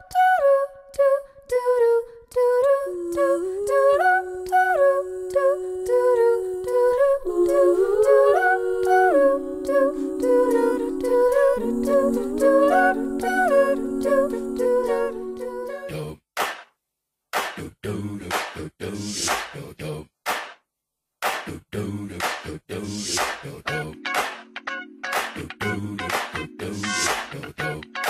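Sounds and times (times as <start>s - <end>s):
a cappella voices humming: 0.0s - 16.2s.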